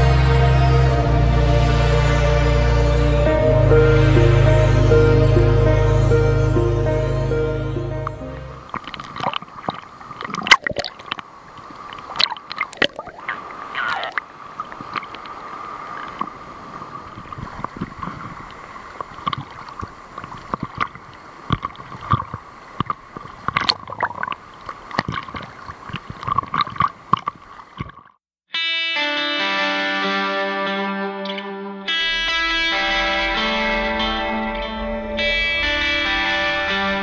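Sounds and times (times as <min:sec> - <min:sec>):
sea water splashing: 0:08.0 - 0:28.2.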